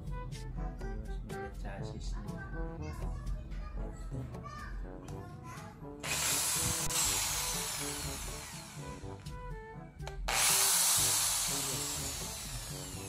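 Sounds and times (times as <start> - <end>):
background music: 0.0 - 13.0
electric drill boring through plastic: 6.0 - 9.0, 10.1 - 13.0.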